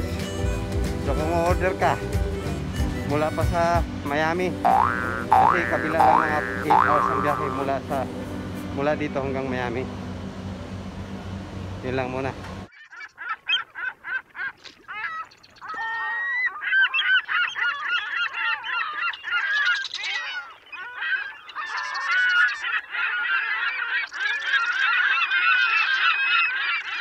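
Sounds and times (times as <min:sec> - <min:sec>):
chorus of bird calls: 0:04.7 - 0:08.0, 0:12.7 - 0:27.0.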